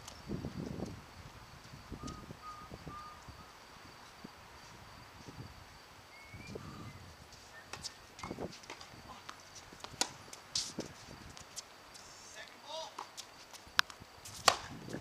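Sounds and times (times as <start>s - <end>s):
footsteps on hard court: 7.3s - 14.7s
tennis ball strike: 8.6s - 10.7s, 14.4s - 14.7s.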